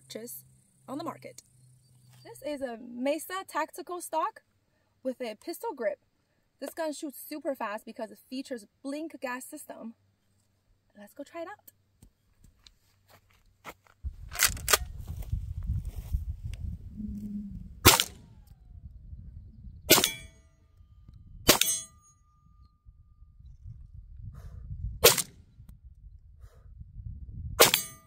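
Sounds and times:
shotgun shots: 17.8s - 18.3s, 19.9s - 20.3s, 21.5s - 21.9s, 25.0s - 25.3s, 27.6s - 28.0s.

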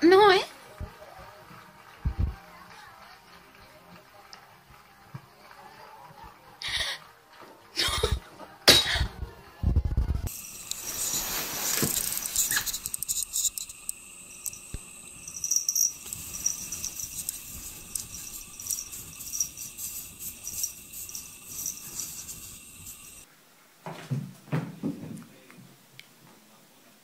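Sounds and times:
cat claws scratching snow: 10.3s - 13.8s, 15.8s - 23.2s.

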